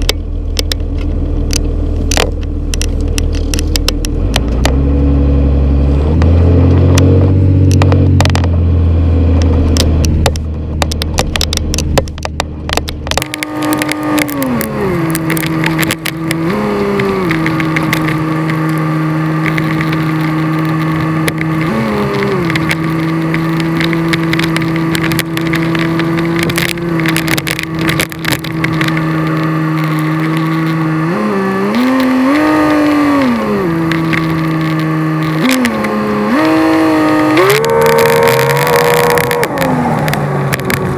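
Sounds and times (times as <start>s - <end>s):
diesel engine rumble and drone: 0.0s - 40.9s
clicks and knocks: 9.4s - 18.8s.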